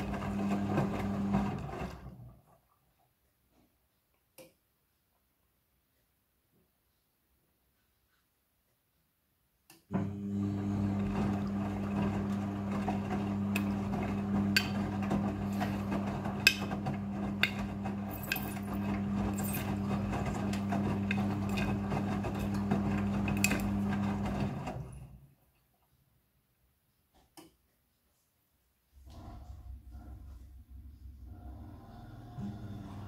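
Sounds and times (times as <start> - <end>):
washing machine motor hum: 0.0 - 2.6, 9.9 - 25.3, 29.0 - 33.0.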